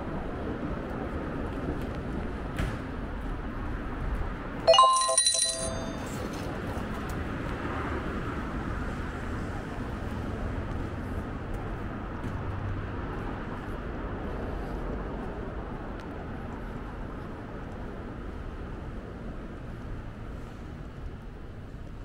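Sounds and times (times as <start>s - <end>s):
bright metallic ring: 4.7s - 6.3s
street background noise: 6.0s - 22.0s.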